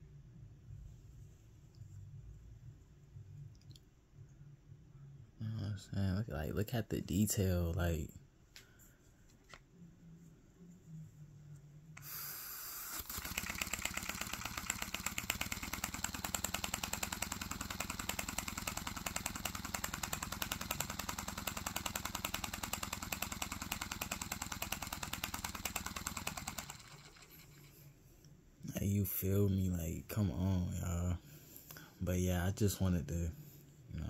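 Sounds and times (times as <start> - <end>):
air hissing: 12.0 - 15.7.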